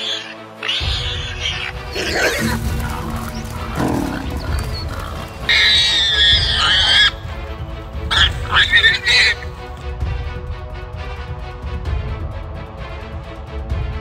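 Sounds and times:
warthog squealing: 0:00.0 - 0:07.4, 0:08.1 - 0:09.5
background music: 0:00.0 - 0:14.0
lion growls: 0:01.6 - 0:07.3.

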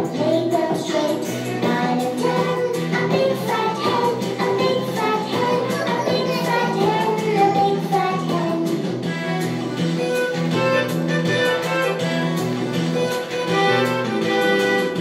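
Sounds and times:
children's song singing: 0:00.0 - 0:15.0
instrumental melody: 0:09.0 - 0:15.0.

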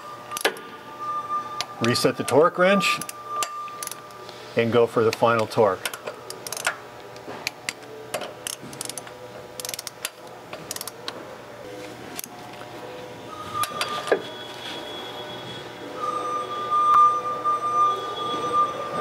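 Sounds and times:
torque wrench ratchet clicking: 0:03.0 - 0:04.0, 0:05.8 - 0:06.8, 0:08.4 - 0:11.0.

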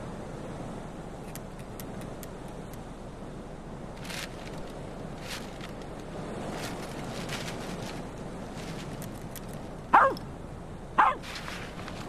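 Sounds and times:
dog barking: 0:09.9 - 0:10.2, 0:11.0 - 0:11.2.

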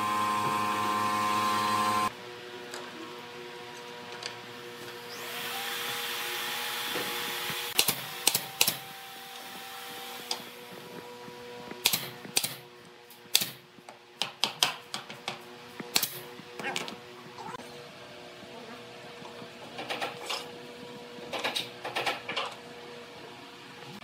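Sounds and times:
nail gun firing into plywood: 0:07.7 - 0:09.0, 0:11.8 - 0:12.6, 0:13.3 - 0:13.6, 0:15.9 - 0:16.2.

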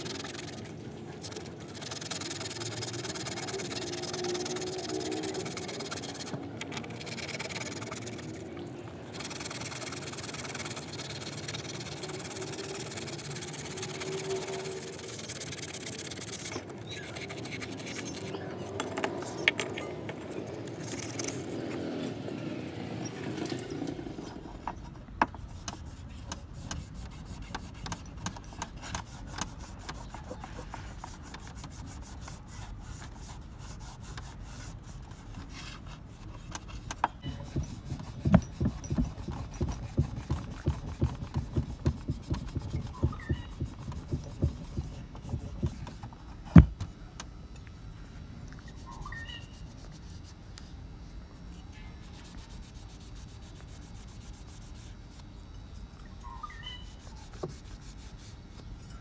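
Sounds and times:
cloth rubbing metal: 0:00.0 - 0:08.5, 0:09.1 - 0:19.4, 0:24.1 - 0:46.6.

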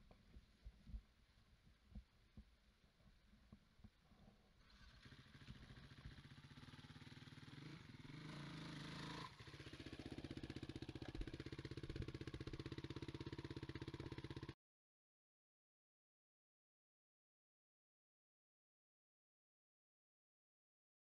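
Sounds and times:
dirt bike engine revving: 0:04.7 - 0:14.5.

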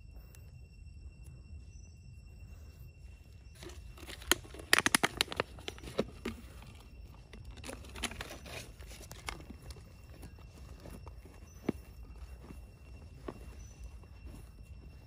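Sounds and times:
plastic bottle crinkling: 0:03.6 - 0:12.6.

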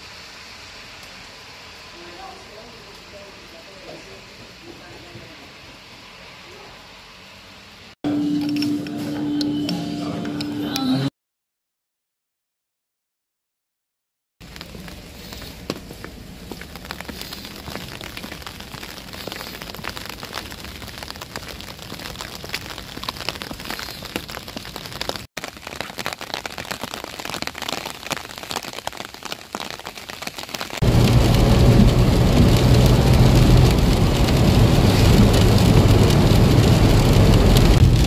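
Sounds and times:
heavy rain on pavement: 0:00.0 - 0:08.0, 0:14.4 - 0:38.0
rain on a car: 0:00.0 - 0:08.0, 0:14.4 - 0:38.0
car interior hum: 0:30.8 - 0:38.0.

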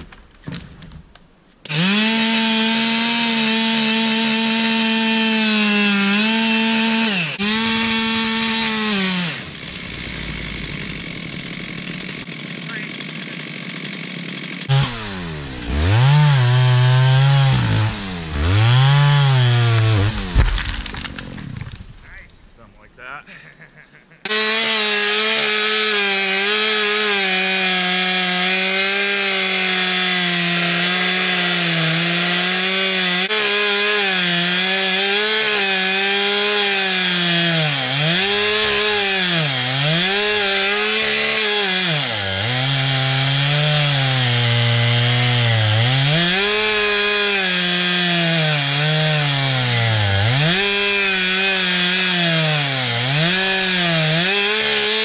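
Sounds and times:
chainsaw cutting into log: 0:01.6 - 0:21.9, 0:24.2 - 0:55.0.

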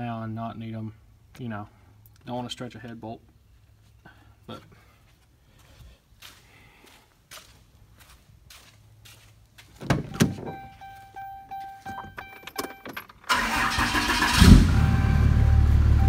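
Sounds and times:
thumps: 0:09.8 - 0:10.9
dashboard warning chime: 0:10.0 - 0:13.5, 0:14.3 - 0:16.0
diesel engine cranking and idling: 0:13.1 - 0:16.0.

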